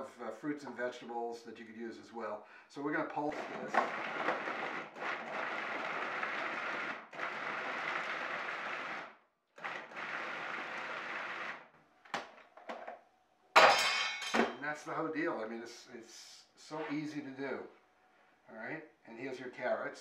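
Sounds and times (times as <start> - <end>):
food processor chopping vegetables: 3.3 - 11.7.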